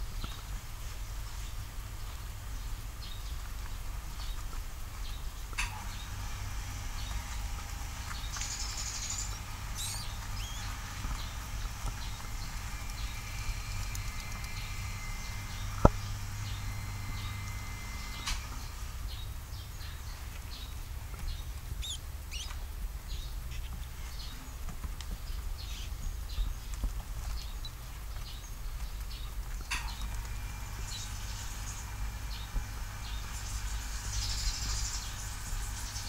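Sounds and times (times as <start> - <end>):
steady low hum: 0.0 - 36.0
rat scratching in bedding: 3.6 - 18.8
rat pups squeaking: 7.0 - 18.2, 21.7 - 22.6.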